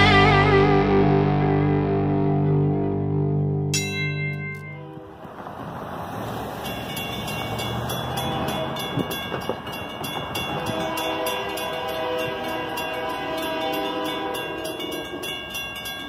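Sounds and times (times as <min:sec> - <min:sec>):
railroad crossing bell ringing: 0:03.7 - 0:05.2, 0:06.5 - 0:16.0
train horn: 0:08.1 - 0:09.0, 0:10.4 - 0:15.3.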